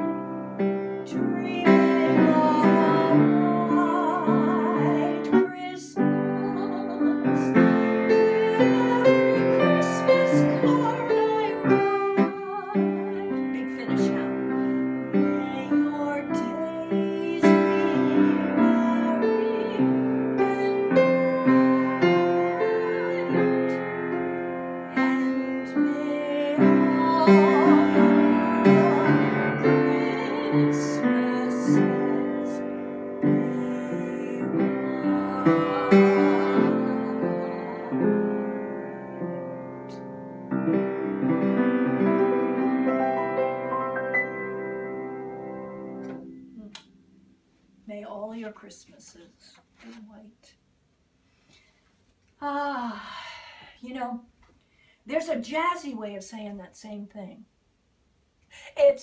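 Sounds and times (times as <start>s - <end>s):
piano playing chords and melody: 0.0s - 5.4s, 6.0s - 15.8s, 16.7s - 46.6s.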